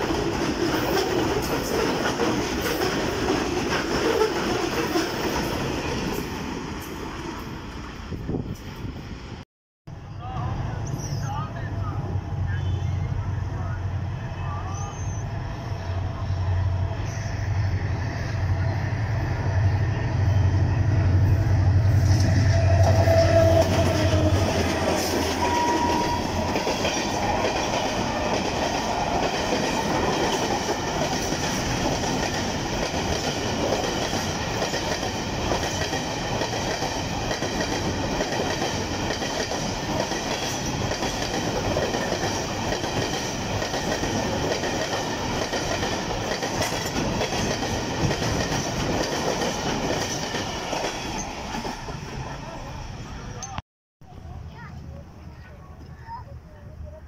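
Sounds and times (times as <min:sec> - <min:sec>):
train wheels running over rails: 0:21.6 - 0:52.4.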